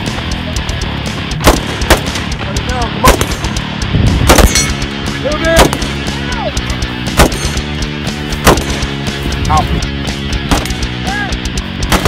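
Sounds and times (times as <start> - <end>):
background music: 0.0 - 12.0
gunshots: 1.3 - 3.6, 4.2 - 4.8, 5.5 - 6.1, 7.0 - 7.7, 8.3 - 9.0, 10.4 - 10.9.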